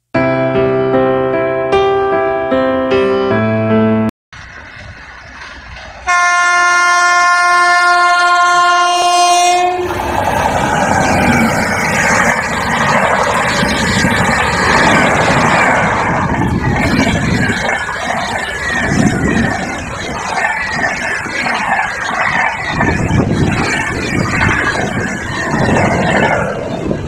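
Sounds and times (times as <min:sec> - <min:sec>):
train wheels rattling on rails: 0:04.4 - 0:27.0
train horn blast: 0:06.0 - 0:10.0.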